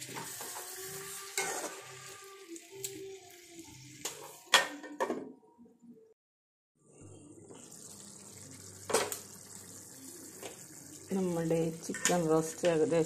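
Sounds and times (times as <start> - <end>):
metal spoon scraping a pan: 0.0 - 2.2
gravy simmering hiss: 7.1 - 13.0.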